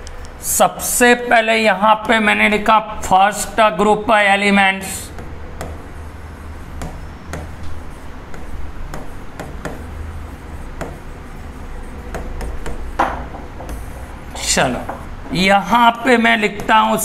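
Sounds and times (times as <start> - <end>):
steady low hum: 0.0 - 17.0
pen tapping while writing: 5.1 - 5.9, 6.7 - 11.3, 11.9 - 14.0.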